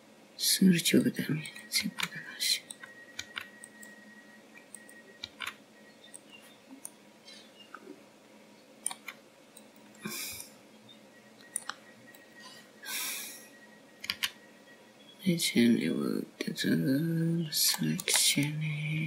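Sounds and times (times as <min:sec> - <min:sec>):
computer mouse and keyboard clicks: 0:01.4 - 0:04.0, 0:04.7 - 0:07.0, 0:08.8 - 0:10.0, 0:11.4 - 0:12.2, 0:14.0 - 0:14.4.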